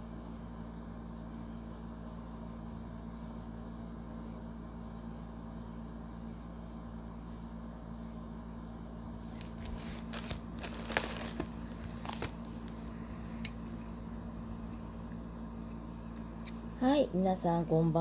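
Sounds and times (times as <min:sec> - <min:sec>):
low electrical hum: 0:00.0 - 0:18.0.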